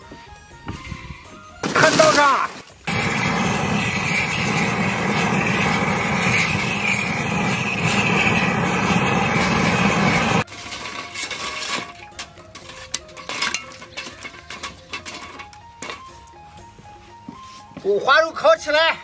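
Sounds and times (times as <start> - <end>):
faint background music: 0.0 - 2.9, 10.4 - 19.0
charcoal clinking on grill grate: 1.6 - 16.4
gas torch flame blowing: 2.8 - 11.0.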